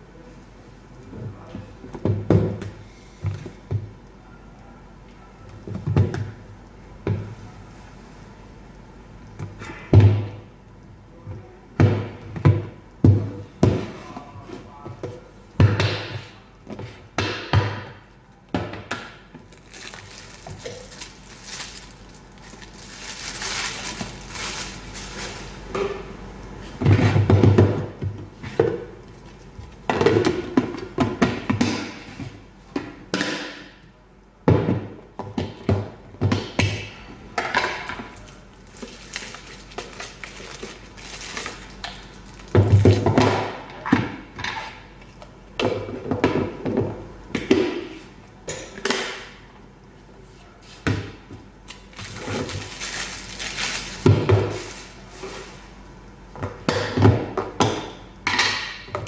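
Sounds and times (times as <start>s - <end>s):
plastic rustling: 19.4s - 25.7s, 38.2s - 43.0s, 51.7s - 55.8s.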